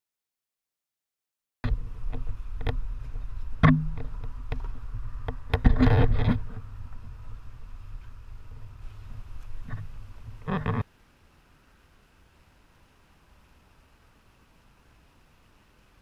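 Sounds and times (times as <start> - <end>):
wind rumbling on microphone: 1.6 - 10.9.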